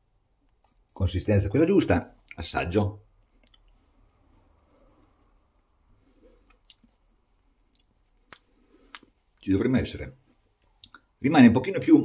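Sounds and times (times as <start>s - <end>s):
chewing and mouth sounds: 3.0s - 9.5s, 10.2s - 11.2s.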